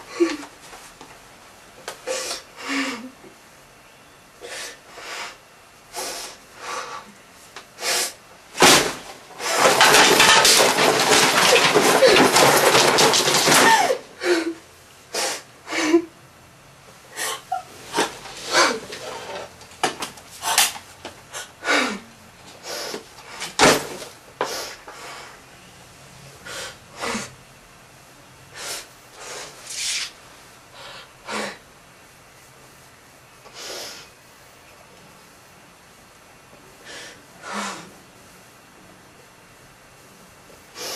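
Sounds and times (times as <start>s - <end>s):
papers and objects rustling: 8.6s - 14.0s, 17.7s - 21.2s.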